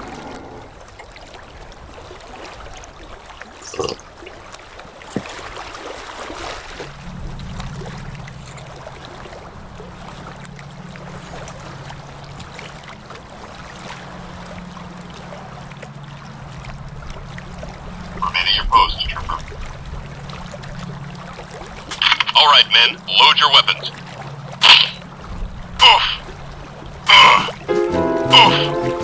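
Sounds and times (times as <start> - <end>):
ocean surf: 0.0 - 4.2, 17.5 - 19.8, 21.4 - 29.0.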